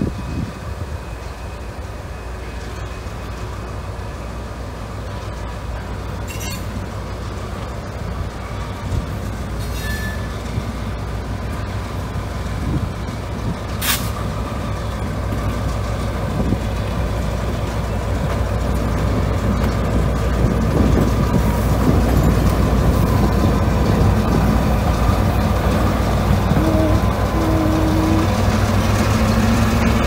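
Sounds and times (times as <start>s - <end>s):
locomotive diesel engine rumble: 0.0s - 30.0s
short hiss of air: 13.8s - 14.3s.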